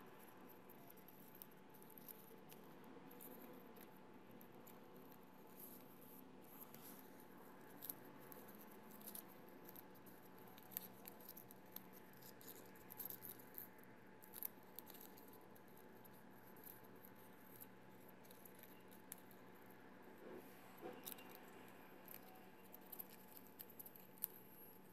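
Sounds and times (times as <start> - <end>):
room hum: 0.0 - 24.9.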